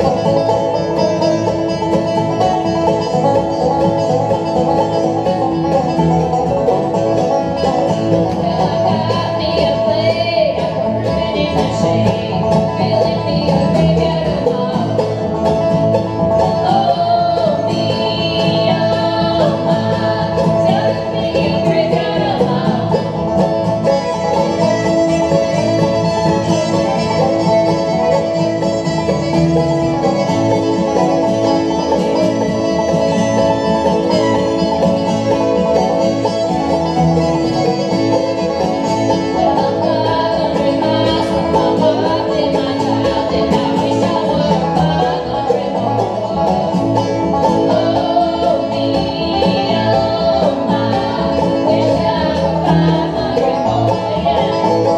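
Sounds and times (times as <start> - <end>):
bluegrass band playing: 0.0 - 54.9
fiddle lead: 0.0 - 54.9
women singing in harmony: 8.3 - 15.1, 16.6 - 23.2, 39.5 - 46.4, 47.5 - 54.9.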